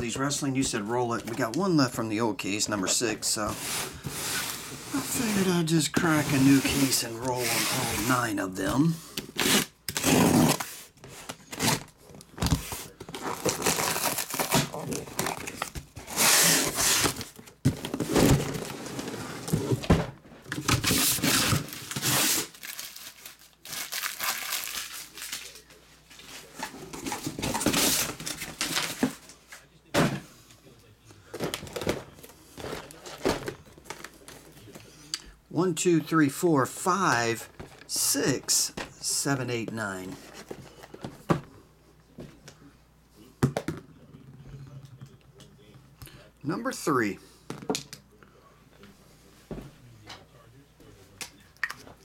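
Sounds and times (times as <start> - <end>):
cardboard rustling and scraping: 3.1 - 8.4, 9.4 - 22.8, 26.1 - 29.3, 31.4 - 34.8, 39.7 - 41.4
cardboard box tearing open: 9.4 - 10.7, 13.1 - 17.3, 20.8 - 22.9.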